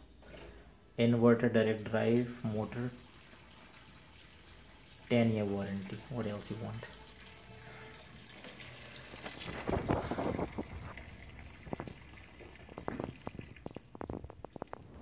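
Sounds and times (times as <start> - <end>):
washing machine filling with water: 1.6 - 15.0
sharp ticks and drips: 1.7 - 15.0.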